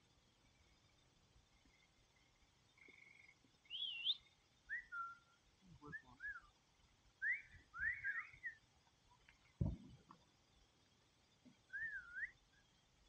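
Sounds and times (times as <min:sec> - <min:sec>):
faint whistled notes: 0:03.0 - 0:06.5, 0:07.2 - 0:08.6, 0:11.7 - 0:12.7.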